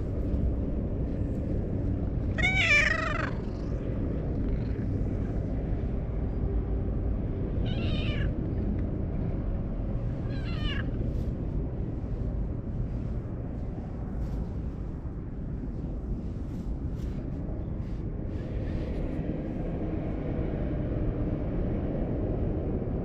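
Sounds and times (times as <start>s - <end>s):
steady low rumble: 0.0s - 23.0s
cat meowing: 2.3s - 3.6s, 7.6s - 8.4s, 10.2s - 11.0s.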